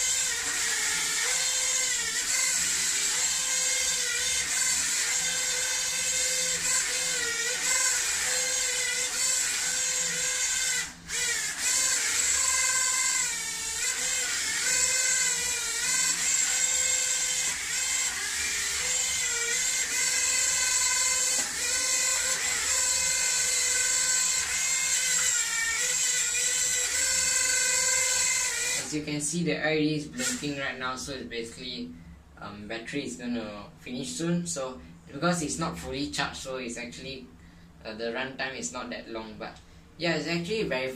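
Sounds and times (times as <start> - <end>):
small drone motors whining: 0.0 - 29.1, 30.0 - 30.6.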